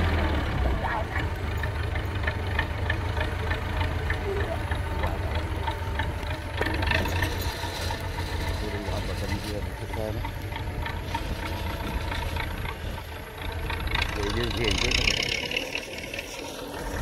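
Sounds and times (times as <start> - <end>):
tractor diesel engine under load: 0.0 - 17.0
light rattle: 1.4 - 17.0.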